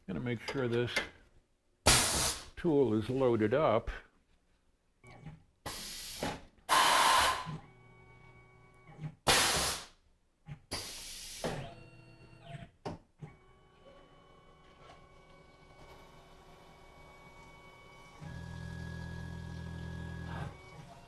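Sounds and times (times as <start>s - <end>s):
compressed air hisses: 1.9s - 2.5s, 5.7s - 7.5s, 9.3s - 9.9s, 10.8s - 11.4s.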